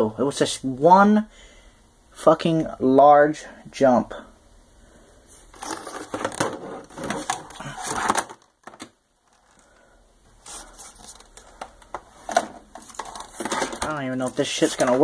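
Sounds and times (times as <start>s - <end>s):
objects knocking and rattling: 5.6s - 9.6s, 11.0s - 14.0s.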